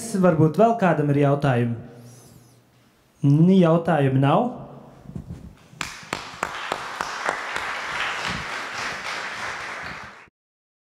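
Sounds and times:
audience applause: 5.8 - 10.3.

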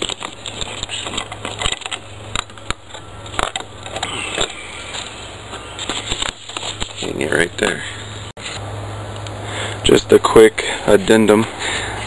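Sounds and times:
wire hanger rustling and clicking: 0.0 - 5.1.

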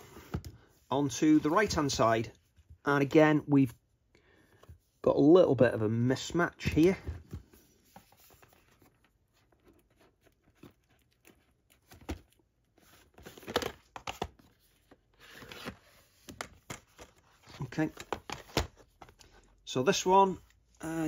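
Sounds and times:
plastic cases clicking and rubbing: 9.6 - 19.4.

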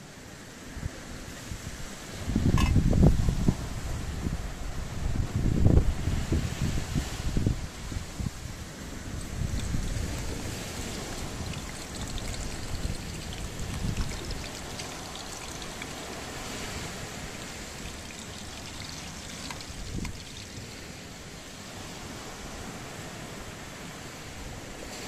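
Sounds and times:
wind buffeting microphone: 2.2 - 20.8
water rushing: 8.8 - 23.1.

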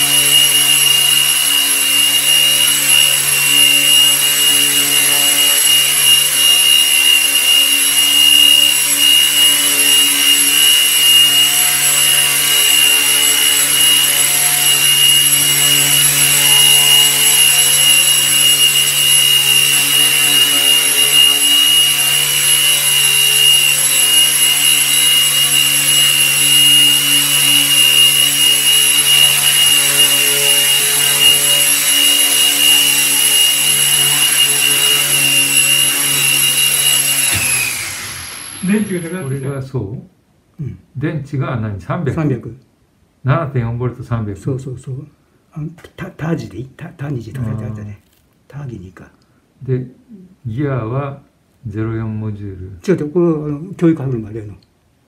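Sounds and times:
rc helicopter whine and buzz: 0.0 - 39.4.

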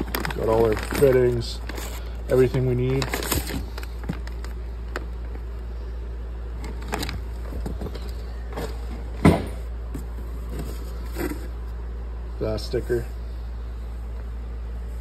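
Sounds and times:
plastic bags rustling: 0.0 - 5.7, 6.5 - 9.2
steady low hum: 0.0 - 15.0.

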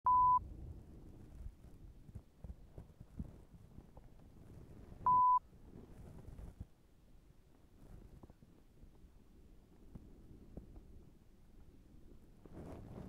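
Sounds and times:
short electronic beep: 0.0 - 0.4, 5.1 - 5.4.

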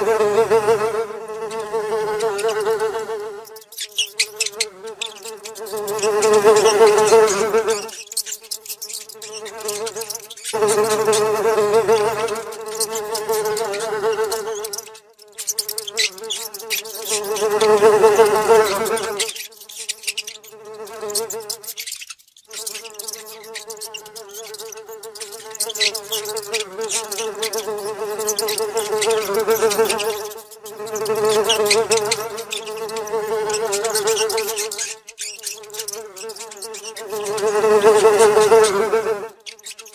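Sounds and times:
housefly buzzing: 0.0 - 39.9.

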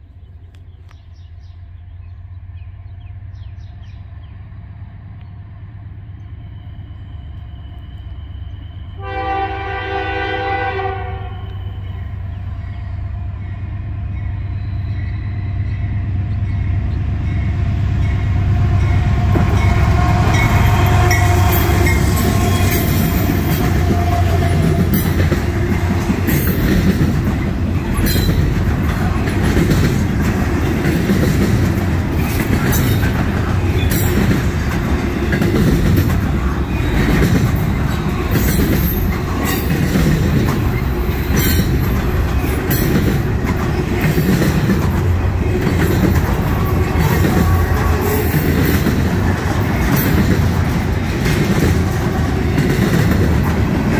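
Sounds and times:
train wheels rumbling on rail: 0.0 - 53.9
wheels clicking and squeaking: 20.4 - 53.9.

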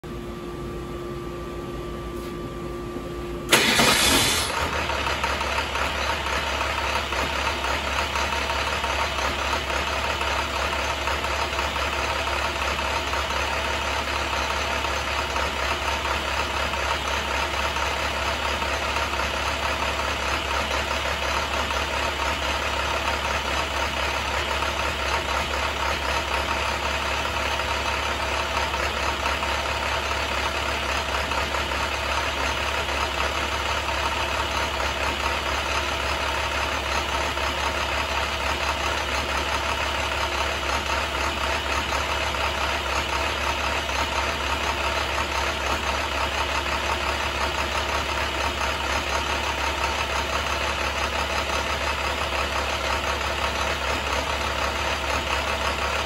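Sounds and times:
steady whine: 0.0 - 4.2
diesel engine starting and idling: 2.2 - 56.0.

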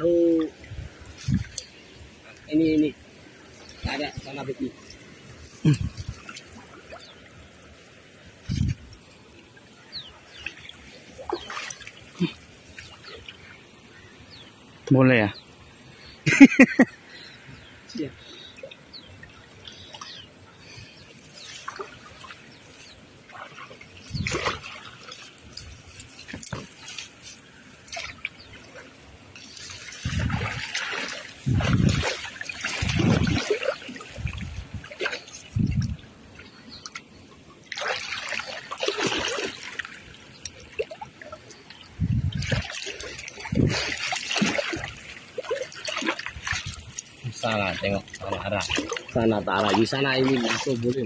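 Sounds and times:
stream water splashing: 0.0 - 51.0
grass and mesh net rustling: 42.3 - 51.0.

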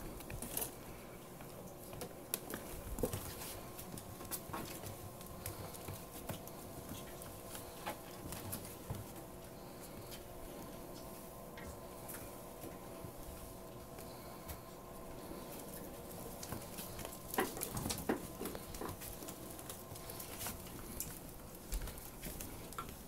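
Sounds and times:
faint steady hum: 0.0 - 23.0
ferret claws scampering on wood floor: 16.1 - 23.0.

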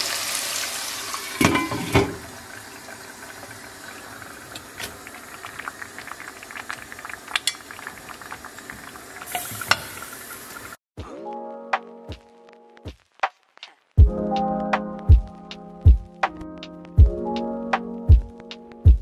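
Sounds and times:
onions frying: 0.0 - 10.8
porridge bubbling: 0.0 - 10.8
glass lid clinking: 1.4 - 2.2, 7.4 - 7.7.

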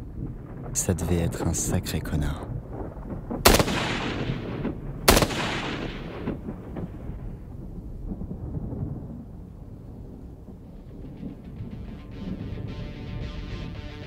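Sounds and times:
low rumble: 0.0 - 13.8
gunshot with echo: 3.4 - 6.9.

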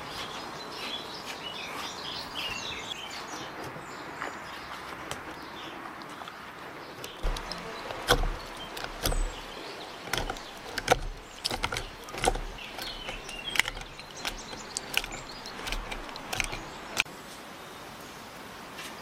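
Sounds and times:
metal tool mashing watermelon: 7.0 - 17.1.

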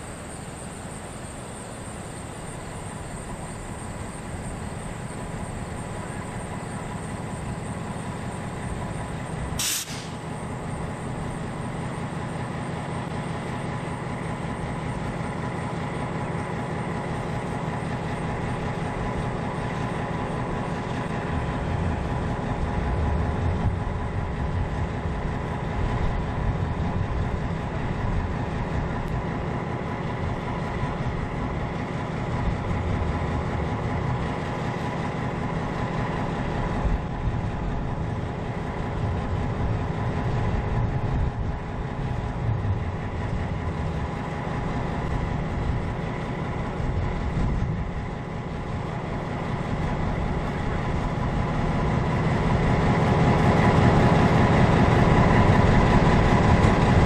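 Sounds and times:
diesel locomotive engine drone: 0.0 - 57.0
rail rumble: 0.0 - 57.0
brief hiss: 9.6 - 10.2.

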